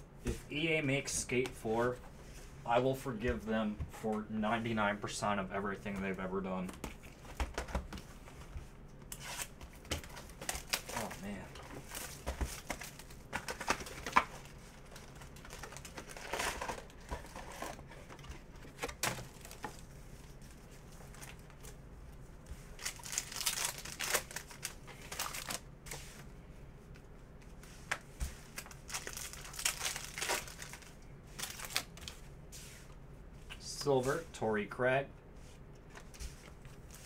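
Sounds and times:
foil wrappers crinkling and tearing: 9.2 - 18.1, 22.8 - 25.6, 28.6 - 32.1.

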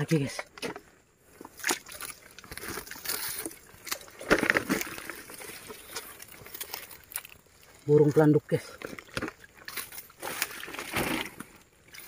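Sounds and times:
sloshing in shallow stream: 1.2 - 12.0.

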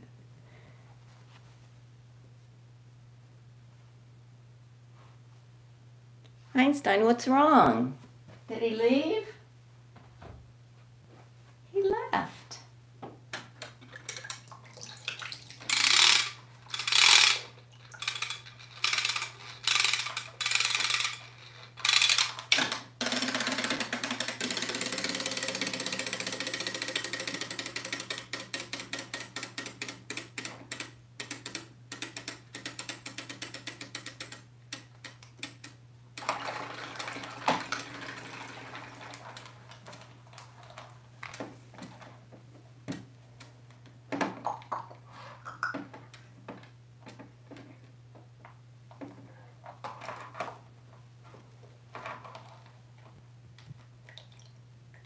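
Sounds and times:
clockwork toys whirring and ticking: 15.7 - 34.4
toy winding clicks: 15.7 - 34.4.

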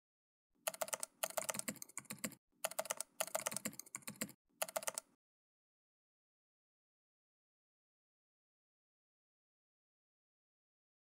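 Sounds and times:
keyboard typing clicks: 0.6 - 5.2.

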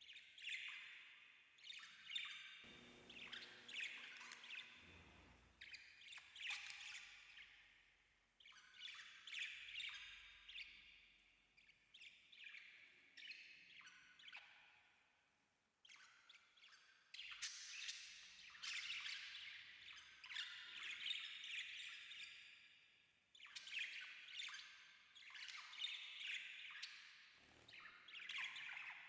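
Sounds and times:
parakeet chirping and chattering: 2.7 - 5.4.

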